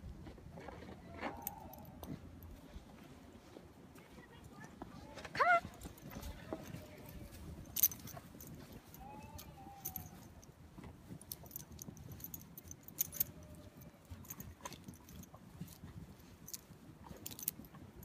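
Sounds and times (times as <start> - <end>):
dog collar jingling: 5.6 - 18.0.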